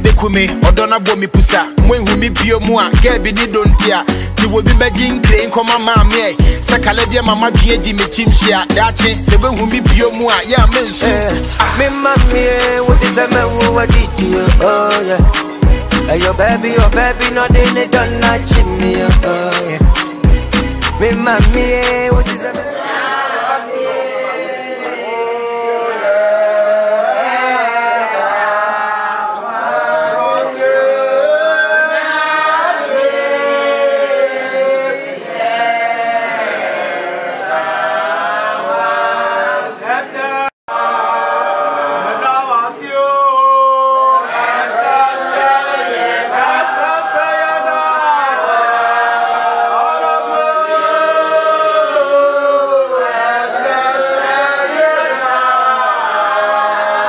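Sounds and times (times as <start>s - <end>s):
group singing unaccompanied: 0.8s - 57.0s.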